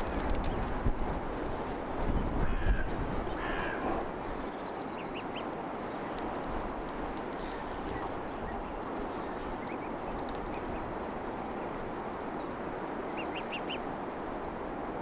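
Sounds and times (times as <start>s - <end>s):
steady background noise: 0.0s - 15.0s
goslings peeping: 13.1s - 13.9s.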